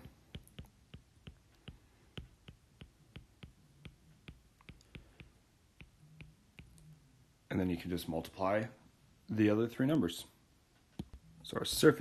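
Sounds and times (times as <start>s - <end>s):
stylus tapping on tablet screen: 0.0s - 6.9s.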